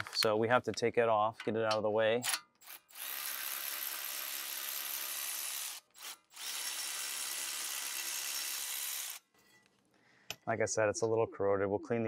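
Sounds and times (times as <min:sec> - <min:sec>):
electric ratchet whirring: 0:02.6 - 0:09.3.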